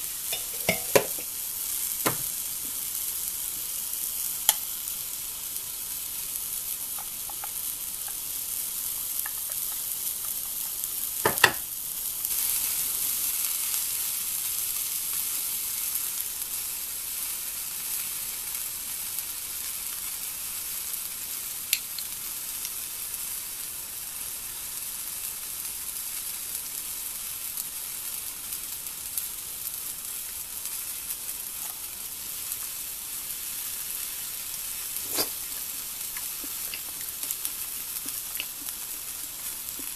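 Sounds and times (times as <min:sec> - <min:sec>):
steady high fizzing hiss: 0:00.0 - 0:24.2, 0:28.9 - 0:39.9.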